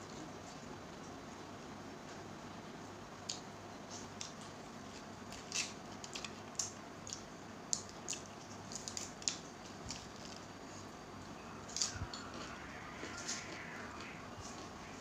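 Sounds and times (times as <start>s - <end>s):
chewing clicks and crackles: 3.3s - 10.5s.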